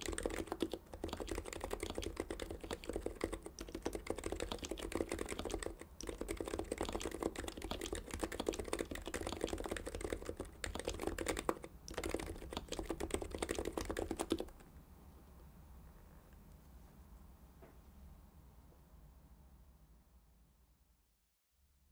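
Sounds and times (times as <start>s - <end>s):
keyboard typing: 0.0s - 14.7s.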